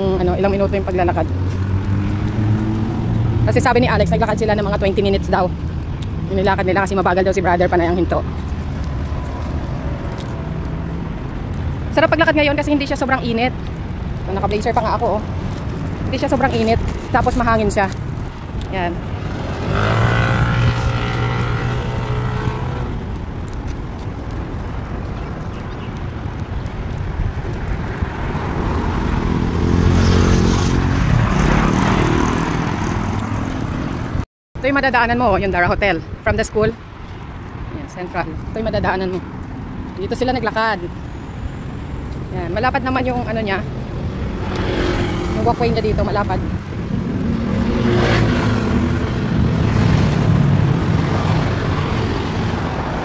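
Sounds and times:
tyre and road noise: 0.0 - 53.0
vehicles passing by: 0.0 - 53.0
wind rumbling on microphone: 0.0 - 53.0
vehicle driving past: 19.3 - 23.0.

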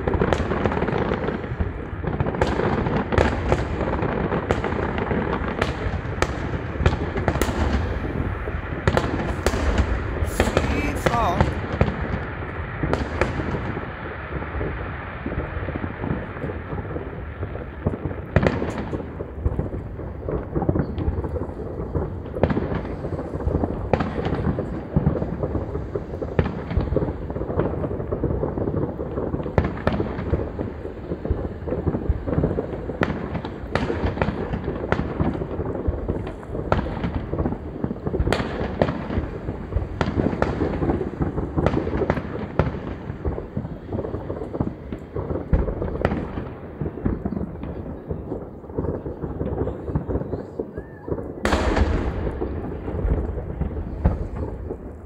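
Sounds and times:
rumble of distant fireworks: 0.0 - 55.0
sharp firework bangs: 0.0 - 55.0.

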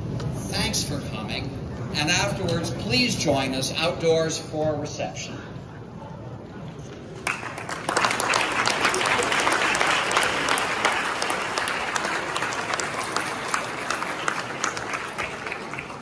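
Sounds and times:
audience clapping: 7.2 - 16.0.

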